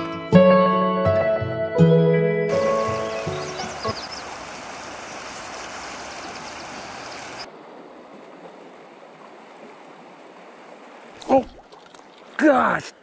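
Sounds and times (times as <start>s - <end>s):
creek water flowing: 2.5s - 13.0s.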